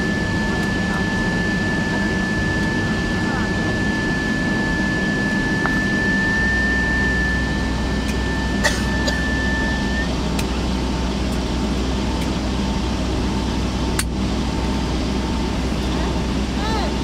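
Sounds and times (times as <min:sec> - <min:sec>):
high steady whine: 0:00.0 - 0:17.0
jet engines idling: 0:00.0 - 0:17.0.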